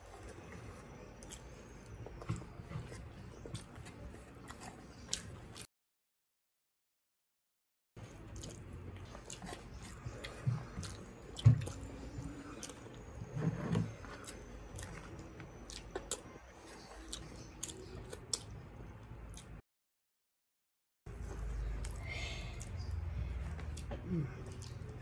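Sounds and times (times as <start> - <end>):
chewing and lip-smacking: 0.2 - 5.7, 8.0 - 13.1, 14.0 - 18.6, 19.3 - 19.6, 22.6 - 25.0.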